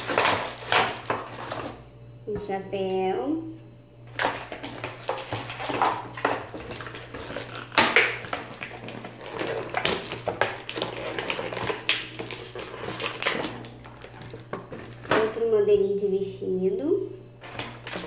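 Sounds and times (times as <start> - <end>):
plastic packaging crinkling: 0.0 - 1.8, 4.1 - 15.4, 17.4 - 18.0.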